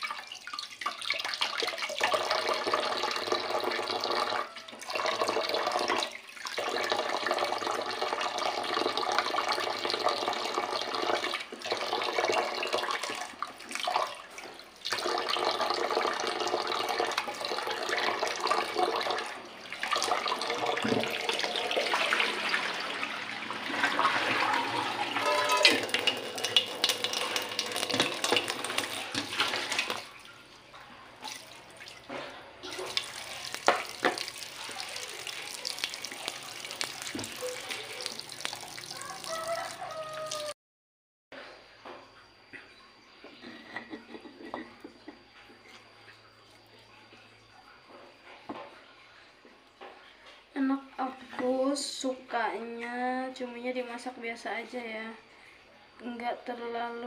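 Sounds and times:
tap water splashing into pot: 0:00.0 - 0:22.8, 0:25.4 - 0:30.2, 0:31.2 - 0:39.4.

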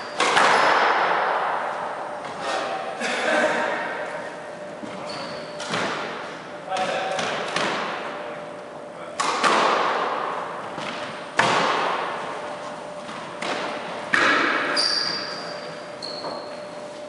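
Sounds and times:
squash ball hits echoing: 0:00.0 - 0:02.3, 0:05.6 - 0:08.2, 0:09.2 - 0:12.4, 0:13.2 - 0:15.6
shoes squeaking on wooden floor: 0:04.8 - 0:05.6, 0:14.8 - 0:16.8.

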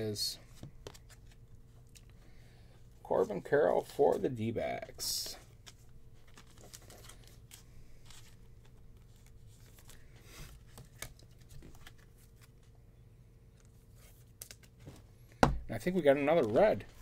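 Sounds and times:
low room hum: 0:00.0 - 0:17.0
trading cards rustling and ticking: 0:00.5 - 0:12.7.

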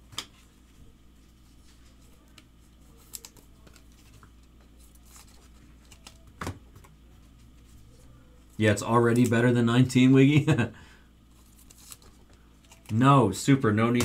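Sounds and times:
trading cards rustling and clicking: 0:01.3 - 0:07.9, 0:11.3 - 0:13.1.

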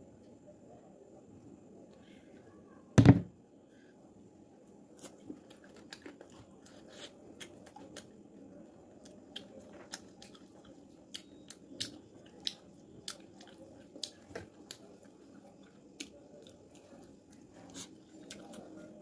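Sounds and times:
chewing: 0:05.0 - 0:19.0.

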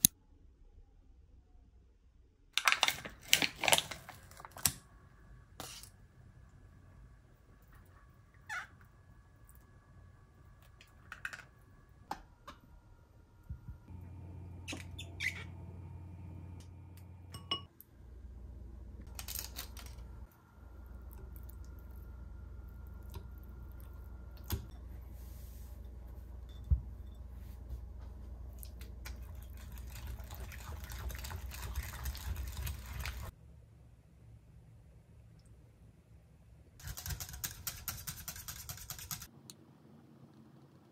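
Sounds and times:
low steady hum: 0:04.1 - 0:36.8
whisk clinking against glass: 0:17.3 - 0:17.7.

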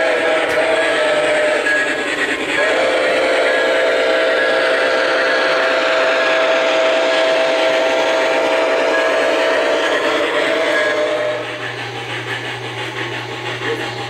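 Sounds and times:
passing train running: 0:00.0 - 0:14.0
train chime whistle blast: 0:03.0 - 0:11.5.

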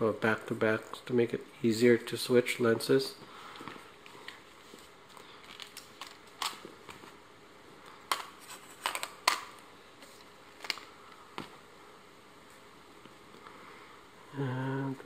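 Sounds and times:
faint handling rustle: 0:03.3 - 0:05.8.

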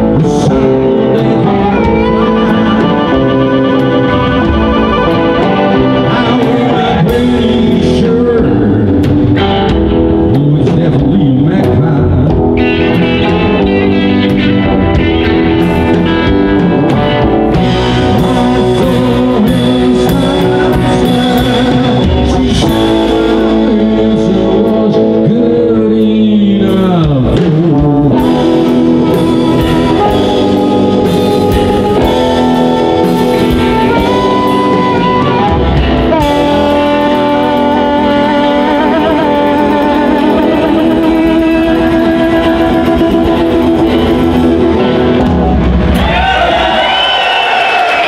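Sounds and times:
amplified harmonica: 0:00.0 - 0:08.3, 0:28.2 - 0:45.9
upright bass: 0:00.0 - 0:47.3
drums: 0:00.0 - 0:48.0
electric guitars: 0:00.0 - 0:48.0.

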